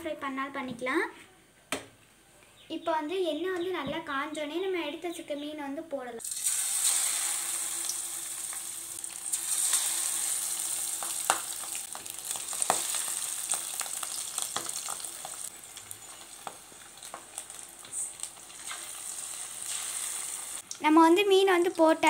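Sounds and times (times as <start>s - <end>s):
fish sizzling in hot oil: 6.2s - 20.7s.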